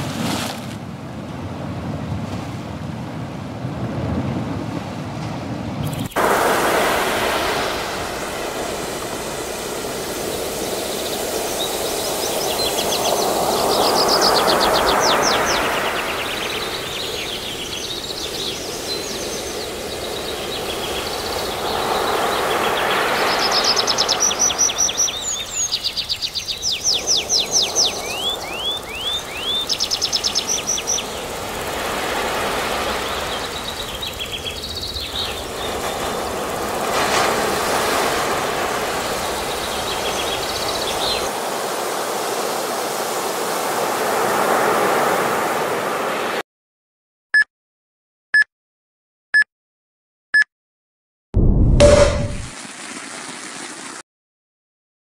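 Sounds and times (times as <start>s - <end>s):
ocean surf washing in: 0.0s - 46.4s
birds chirping: 5.8s - 31.4s.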